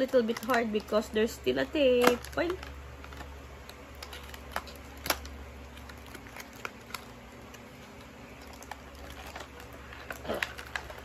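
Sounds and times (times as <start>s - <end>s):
steady low hum: 0.0s - 11.0s
tape and wrapping crackling: 0.0s - 11.0s.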